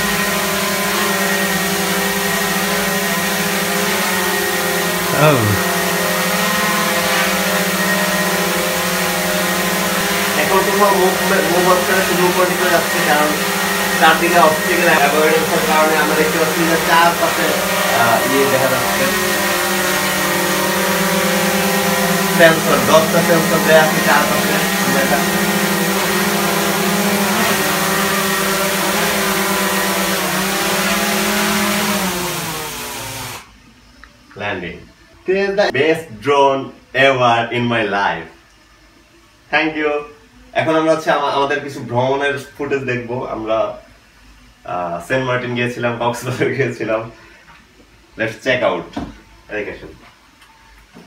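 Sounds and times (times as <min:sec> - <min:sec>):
man's voice: 0:05.1 - 0:05.6
drone propellers whirring: 0:17.4 - 0:33.4
drone propellers humming: 0:20.8 - 0:28.1.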